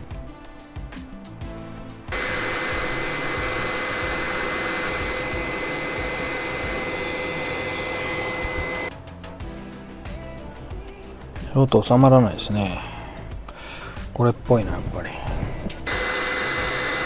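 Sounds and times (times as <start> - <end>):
hot air station blowing with whine: 1.9 - 9.0, 13.6 - 17.0.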